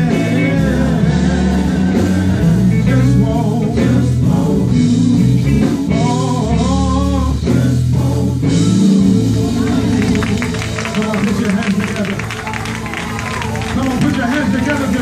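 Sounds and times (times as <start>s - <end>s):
gospel quartet singing with band: 0.0s - 11.4s
bass line: 0.0s - 15.0s.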